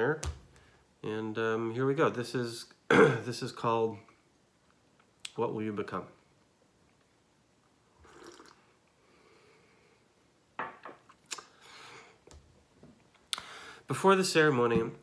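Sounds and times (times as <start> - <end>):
sipping from mug: 8.0 - 8.6
person breathing: 9.0 - 10.2, 11.5 - 12.2, 13.4 - 13.9.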